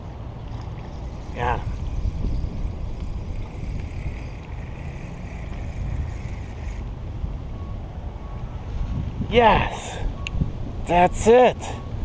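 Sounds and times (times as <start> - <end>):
wind buffeting microphone: 0.0 - 11.2
fishing reel whirring: 0.5 - 6.9.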